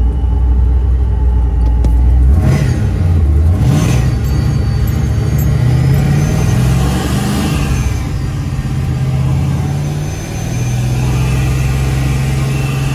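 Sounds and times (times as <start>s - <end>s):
car engine revving: 2.1s - 12.9s.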